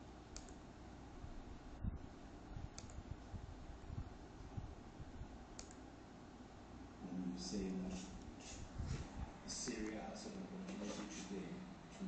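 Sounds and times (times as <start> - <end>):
laptop controls clicking: 0.3 - 0.6, 2.7 - 3.0, 5.6 - 5.8.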